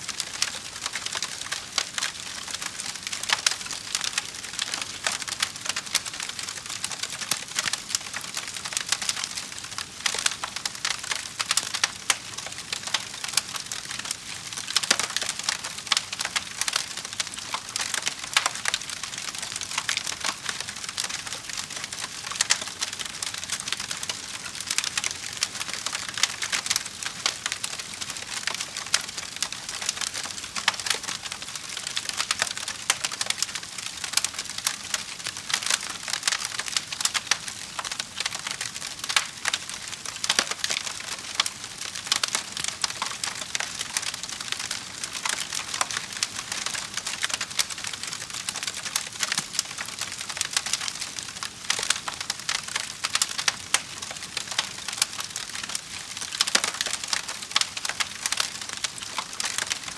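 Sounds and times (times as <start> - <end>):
wood fire crackling and popping: 0.0 - 59.9.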